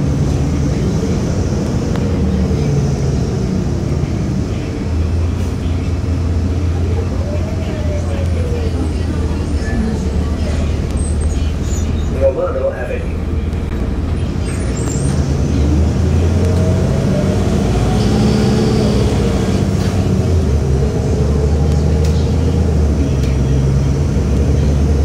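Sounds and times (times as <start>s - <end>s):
road noise: 0.0s - 25.0s
engine tone rising and falling: 6.1s - 25.0s.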